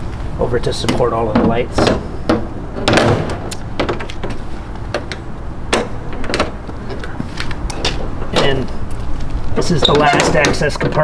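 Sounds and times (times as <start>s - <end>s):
steady low rumble: 0.0s - 9.8s
metal latch clicks and knocks: 0.8s - 6.6s, 9.8s - 11.0s.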